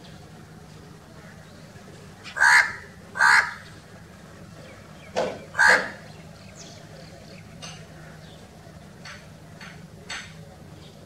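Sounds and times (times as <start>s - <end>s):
crow cawing: 2.2s - 3.6s, 5.6s - 6.0s.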